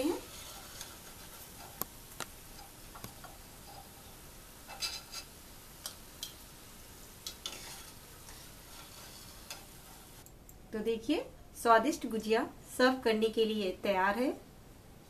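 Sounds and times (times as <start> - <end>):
pastries sizzling in hot oil: 0.0 - 10.2.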